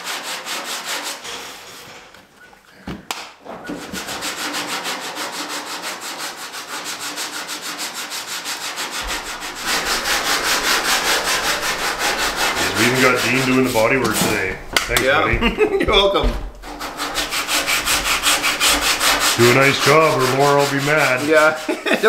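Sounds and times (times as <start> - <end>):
sanding block rubbing metal: 0.0 - 2.0, 3.8 - 22.0.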